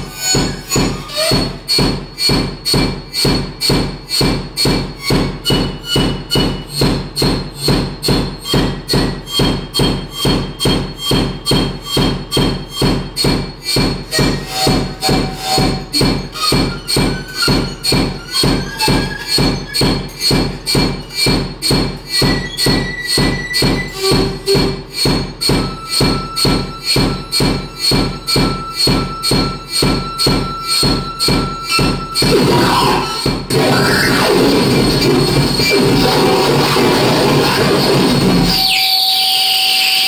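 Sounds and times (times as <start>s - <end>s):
thin high synth tones: 25.6s - 40.0s
low throbbing synth pulse: 31.8s - 38.7s.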